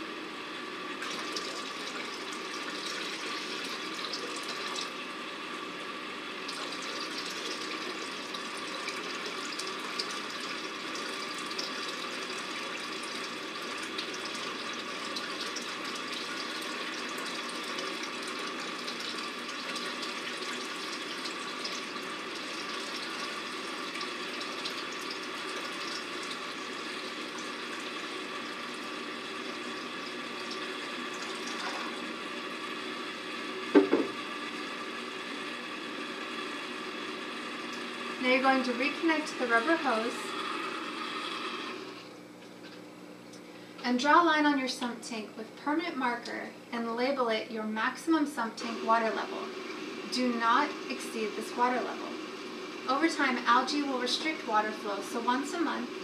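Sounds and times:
pump humming: 0.0 - 56.0
water pouring and splashing: 1.0 - 5.0, 6.5 - 32.2.

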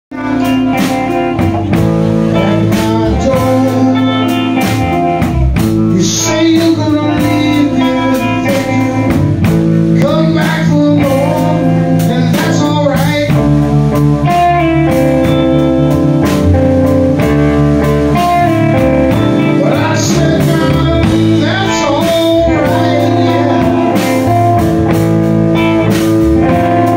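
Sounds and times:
man singing: 0.1 - 1.6, 2.2 - 13.6, 18.2 - 25.0
drum kit: 0.1 - 26.9
electric bass: 0.1 - 26.9
electric guitars: 0.1 - 26.9.

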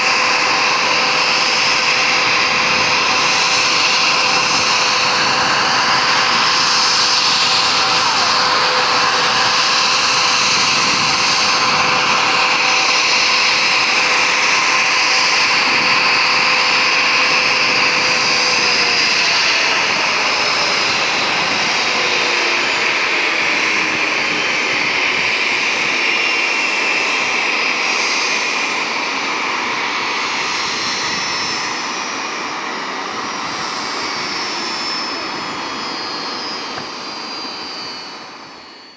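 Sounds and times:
jet engines whining: 0.0 - 38.9.

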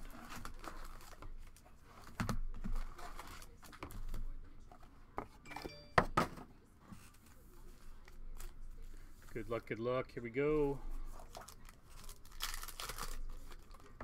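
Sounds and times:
foil packs crinkling: 0.0 - 1.7, 11.2 - 14.0.

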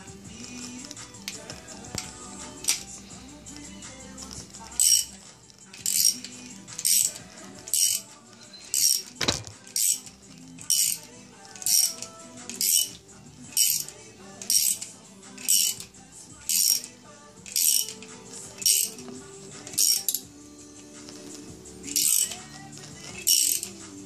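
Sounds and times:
metallic rattling clink: 0.5 - 20.3, 21.2 - 23.9.

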